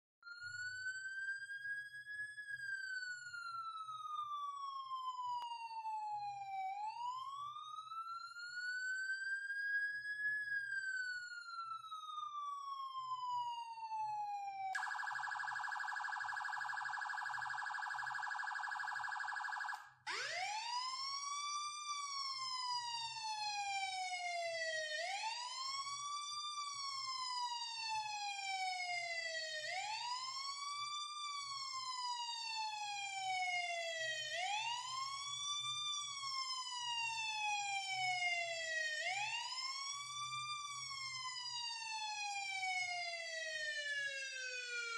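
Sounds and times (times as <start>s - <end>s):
siren wailing and warbling: 0.2s - 25.9s.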